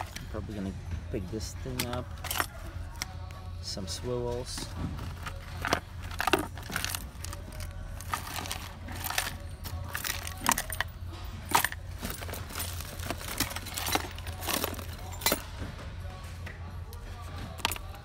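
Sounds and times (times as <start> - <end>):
metal tackle clinking in box: 1.6 - 3.1, 4.5 - 15.5, 17.5 - 18.0.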